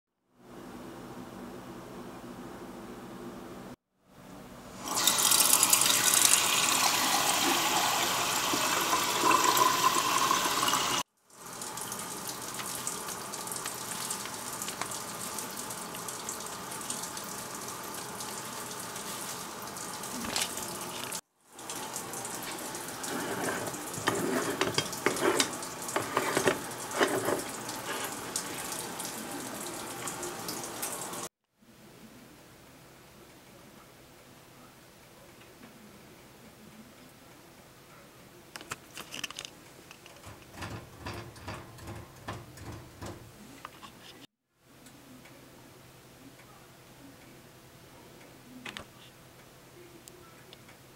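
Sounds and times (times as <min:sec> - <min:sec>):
tap water running: 0:04.8 - 0:31.3, 0:39.3 - 0:43.9
clicks and scrapes: 0:23.1 - 0:28.2, 0:38.6 - 0:42.0.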